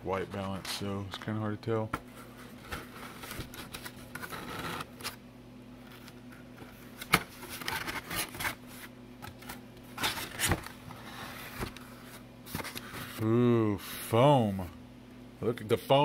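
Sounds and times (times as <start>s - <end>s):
cardboard scraping and rubbing: 2.1s - 5.2s, 6.7s - 8.9s.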